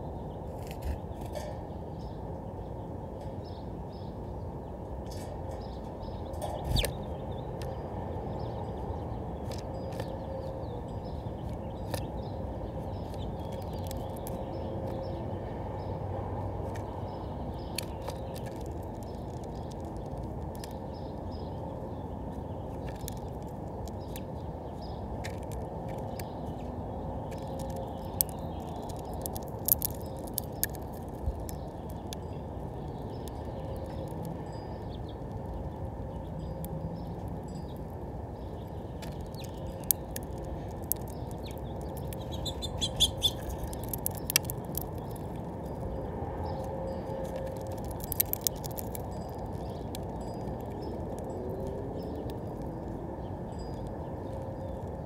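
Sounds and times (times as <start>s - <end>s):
bird pecking seeds: 9.0s - 15.3s, 16.6s - 35.8s, 36.5s - 55.0s.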